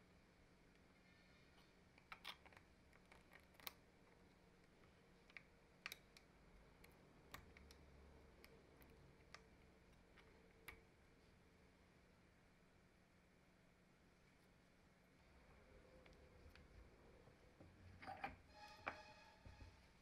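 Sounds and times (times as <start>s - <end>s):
faint metal clicks: 1.6s - 11.0s.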